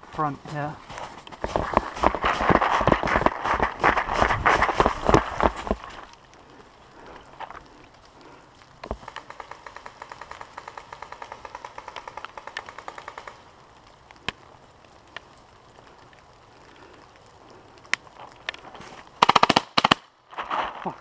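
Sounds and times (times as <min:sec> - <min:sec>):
distant paintball markers firing: 0:08.9 - 0:13.4.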